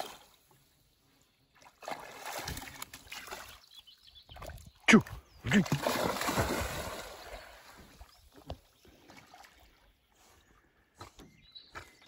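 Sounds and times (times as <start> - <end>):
water sounds of dog swimming: 0.0 - 11.2
dog splashing into water: 1.8 - 3.6, 5.6 - 7.9.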